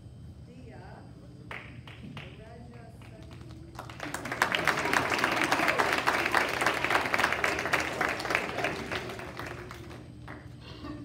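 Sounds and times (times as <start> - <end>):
audience applauding: 3.8 - 10.6.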